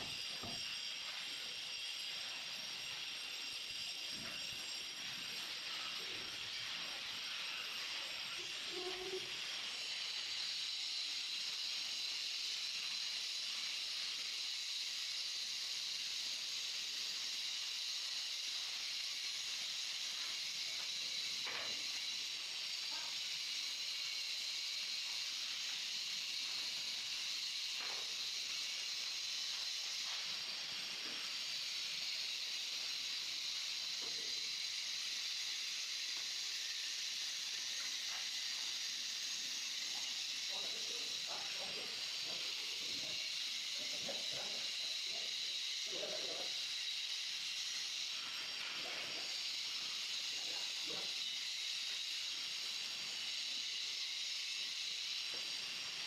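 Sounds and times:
steady high hiss: 0.0s - 56.0s.

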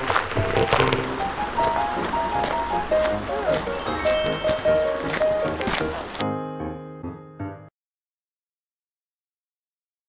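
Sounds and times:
background music last note: 2.7s - 6.4s.

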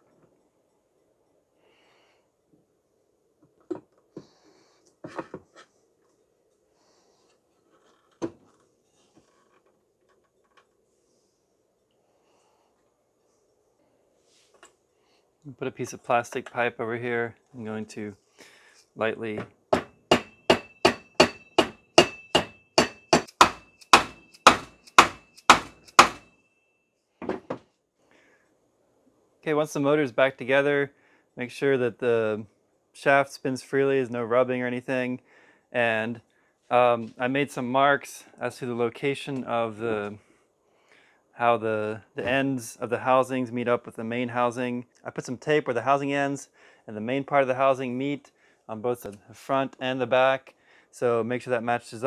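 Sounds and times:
faint ringing: 19.2s - 27.5s.

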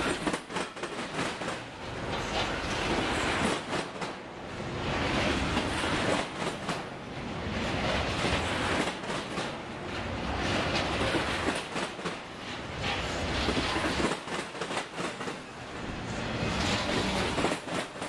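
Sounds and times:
steel wheels clacking on track: 0.0s - 4.2s, 10.5s - 15.4s, 16.4s - 18.0s
freight train rumbling past: 0.0s - 18.0s.

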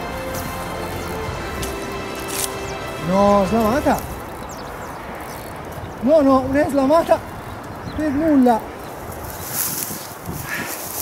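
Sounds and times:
wind buffeting microphone: 2.7s - 11.0s.

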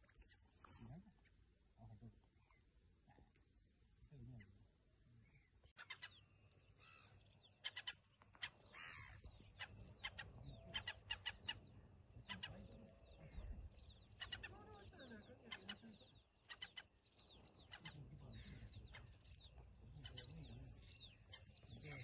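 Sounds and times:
bird chipping calls: 5.7s - 22.0s.

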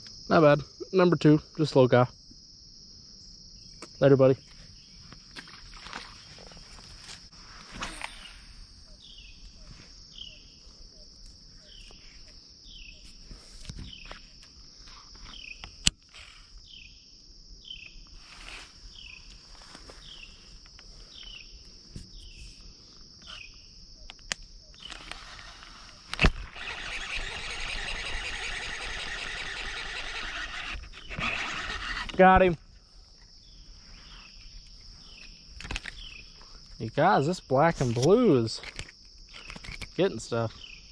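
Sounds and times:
insects droning: 0.0s - 40.9s
fishing reel whirring: 24.9s - 32.2s.

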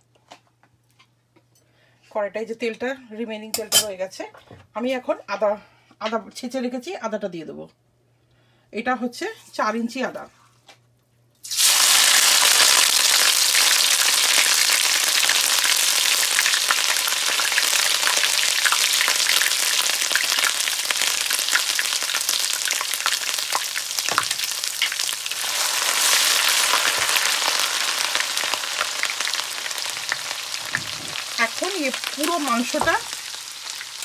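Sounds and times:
ginger sizzling in hot oil: 11.4s - 34.0s.

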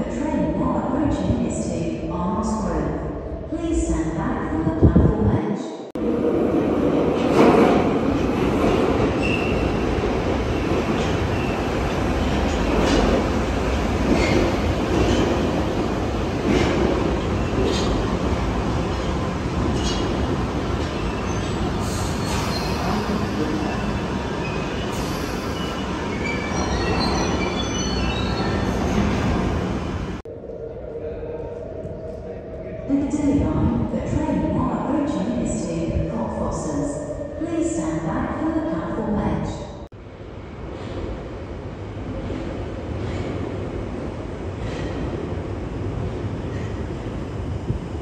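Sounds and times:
train wheels rumbling on rail: 6.0s - 30.2s.

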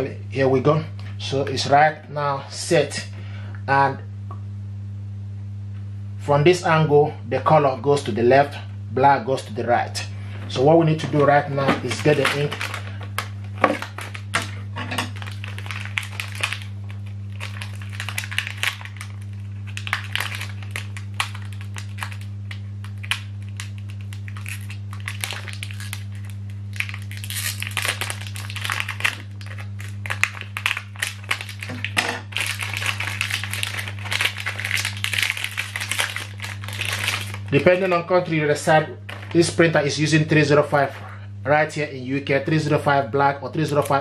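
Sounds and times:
steady low hum: 0.0s - 44.0s
plastic packaging crinkling: 10.9s - 41.2s, 43.6s - 44.0s
scissors cutting plastic: 11.8s - 16.6s, 17.3s - 37.4s.

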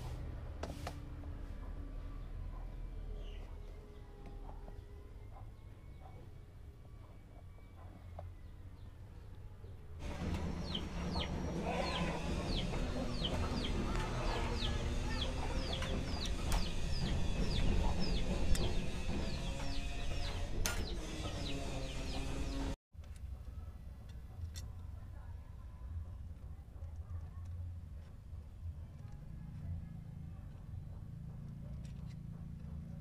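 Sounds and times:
hens clucking: 10.0s - 22.7s
chicks peeping: 10.0s - 22.8s.

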